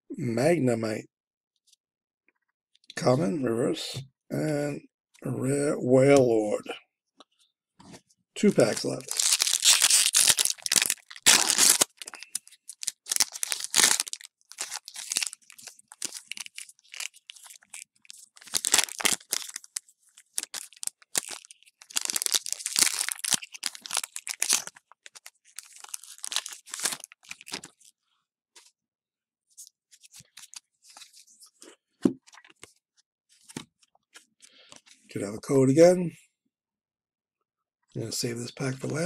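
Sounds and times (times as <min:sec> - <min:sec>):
foil wrapper crinkling and tearing: 0:08.6 - 0:27.9.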